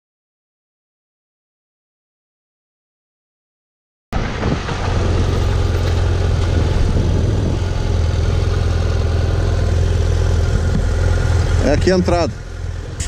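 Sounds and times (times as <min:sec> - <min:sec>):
motorcycle engine running: 0:04.2 - 0:13.0.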